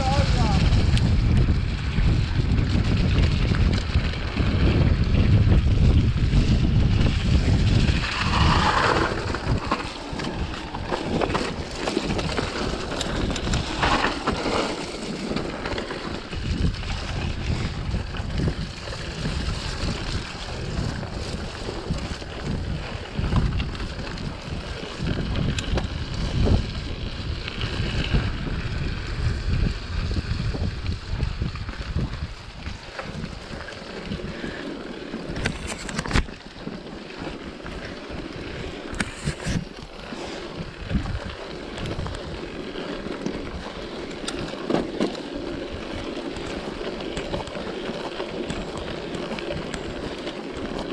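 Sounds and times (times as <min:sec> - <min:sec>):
bike rattling and knocking: 0:00.0 - 0:50.9
tyres rumbling on dirt: 0:00.0 - 0:50.9
wind buffeting microphone: 0:00.0 - 0:50.9.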